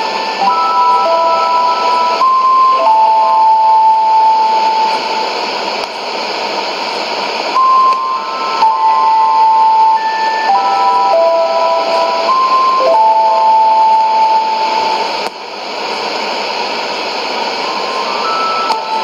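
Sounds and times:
simple electronic tune: 0.0s - 5.3s, 7.6s - 15.2s, 17.6s - 19.0s
radio static hiss: 0.0s - 19.0s.

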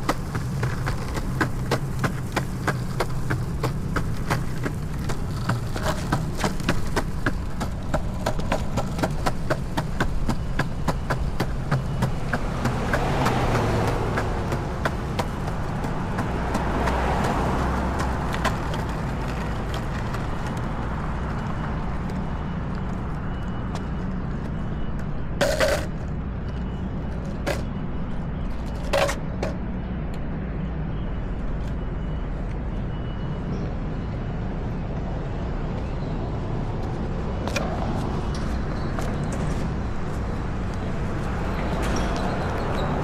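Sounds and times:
wheel clicks over slab joints: 0.0s - 20.6s
car passing: 0.0s - 23.6s
wheels rolling on concrete: 0.0s - 29.7s, 36.8s - 43.0s.

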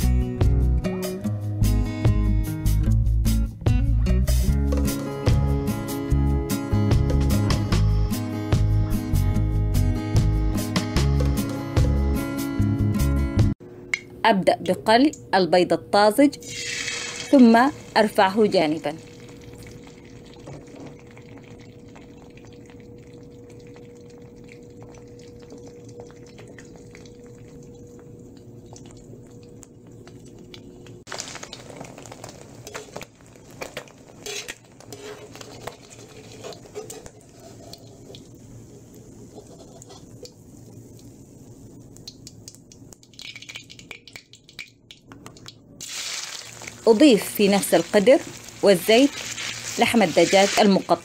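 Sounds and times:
faint steady hum: 13.6s - 31.1s, 32.4s - 43.1s
egg sizzling in oil: 16.4s - 51.0s
utensil scraping a wok: 34.1s - 38.2s, 39.2s - 40.2s.

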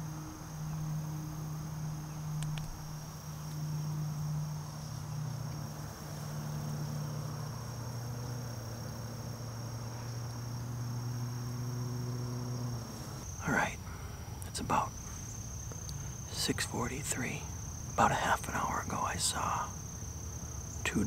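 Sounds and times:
crickets trilling: 0.0s - 21.0s
low steady hum: 0.0s - 21.0s
faint clicks: 2.4s - 2.8s, 15.6s - 16.2s.

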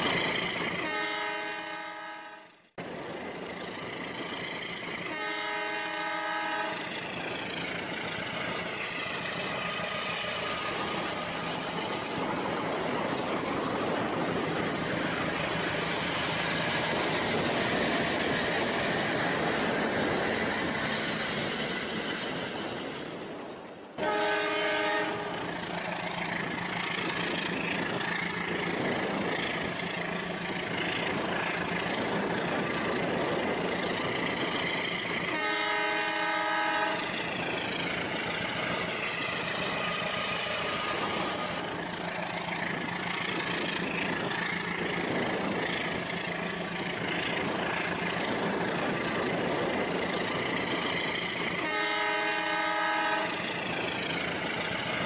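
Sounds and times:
electronic train horn: 0.7s - 2.6s, 5.0s - 7.0s, 24.0s - 25.5s, 35.2s - 37.2s, 51.5s - 53.7s.

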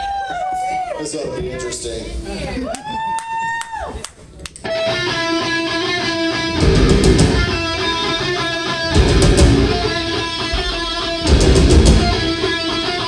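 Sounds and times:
distorted electric guitar riff: 4.7s - 13.0s
bass and drums crashing: 6.2s - 13.0s.

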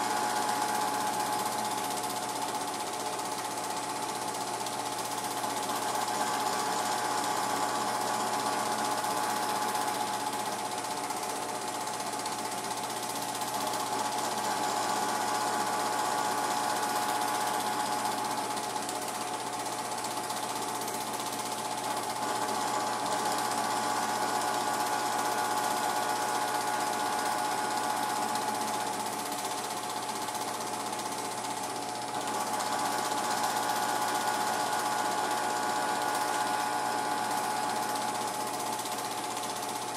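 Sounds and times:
film projector whirring: 0.0s - 39.9s.

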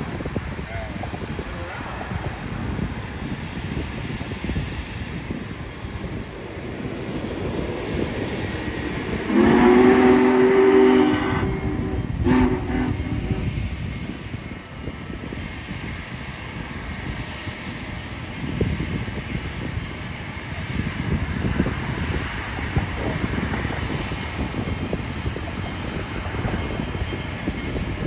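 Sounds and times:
steady rumble: 0.0s - 28.0s
wind: 0.0s - 28.0s
locomotive horn chime: 9.3s - 13.5s.

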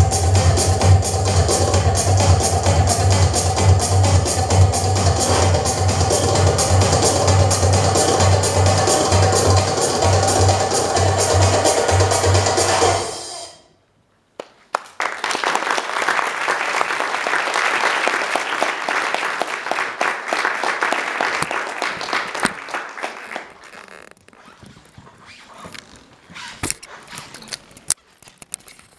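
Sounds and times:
stage music: 0.0s - 13.6s
audience applause: 14.7s - 23.8s.

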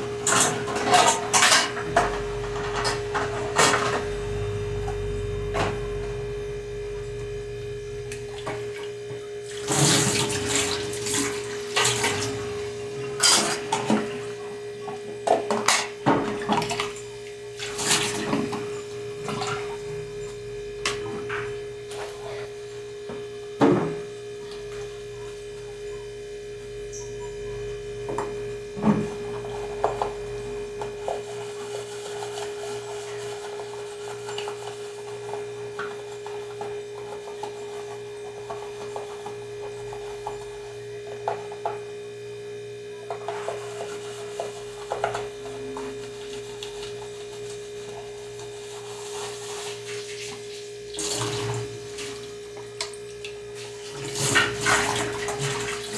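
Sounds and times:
steady electrical hum: 0.0s - 55.9s.

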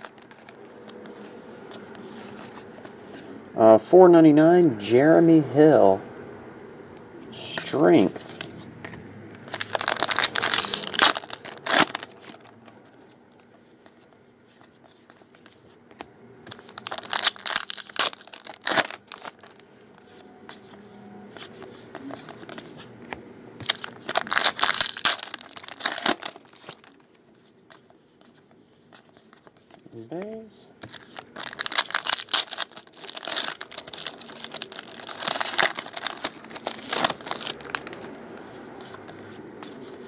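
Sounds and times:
foil wrappers crinkling and tearing: 0.0s - 0.4s, 9.5s - 12.6s, 16.5s - 19.6s, 23.6s - 27.0s, 30.8s - 38.1s.

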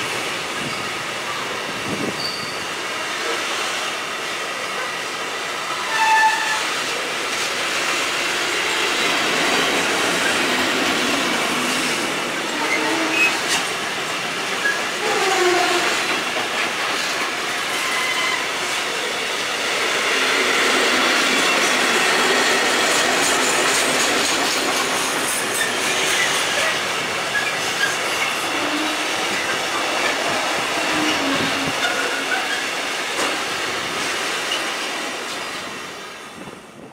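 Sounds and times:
freight train wagons rolling past: 0.0s - 4.9s, 5.5s - 36.9s
wheel squeals: 2.2s - 2.7s.

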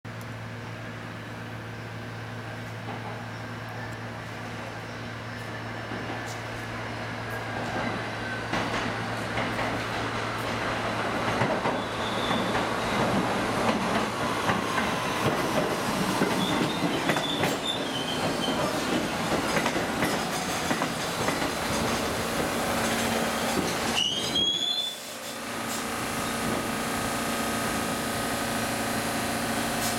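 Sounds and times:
train wheels rumbling on rail: 0.4s - 29.9s
high wheel squeals: 11.7s - 13.2s, 16.2s - 18.7s, 23.7s - 25.4s.

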